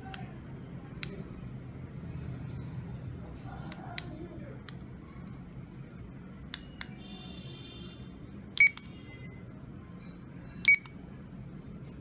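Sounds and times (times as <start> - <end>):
short electronic beeps: 8.6 - 9.4, 10.6 - 10.9.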